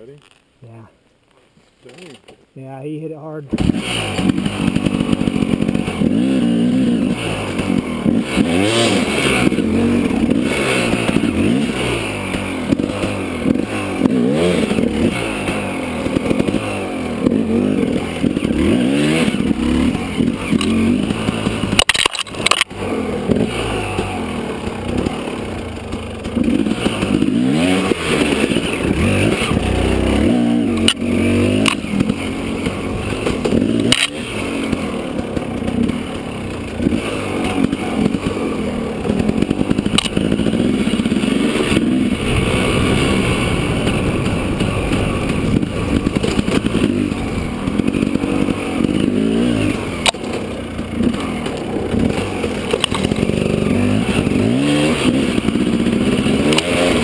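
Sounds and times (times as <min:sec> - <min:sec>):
dirt bike engine revving: 0:03.5 - 0:57.0.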